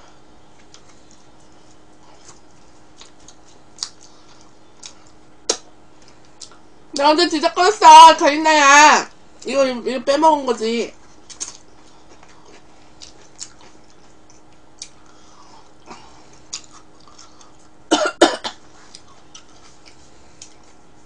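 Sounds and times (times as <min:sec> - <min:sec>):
woman coughing: 0:17.9 - 0:18.6.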